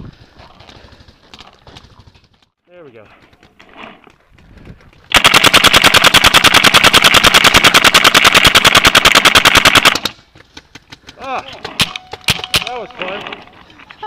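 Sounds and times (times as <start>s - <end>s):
paintball marker firing rapid pops: 5.1s - 11.0s.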